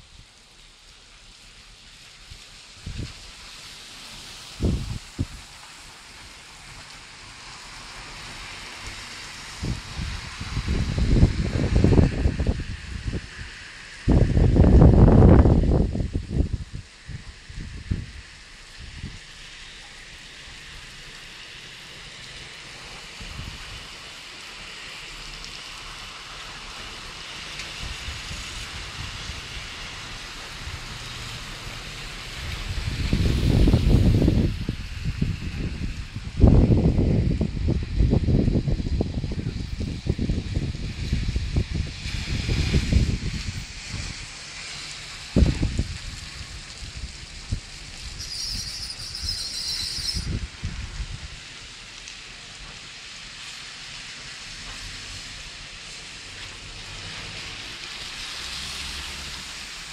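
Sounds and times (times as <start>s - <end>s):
rain falling on street: 0.0s - 59.9s
traffic on wet road: 0.0s - 59.9s
wind on microphone: 4.5s - 5.5s, 9.5s - 19.2s, 23.2s - 23.9s, 32.2s - 44.4s, 45.1s - 51.5s.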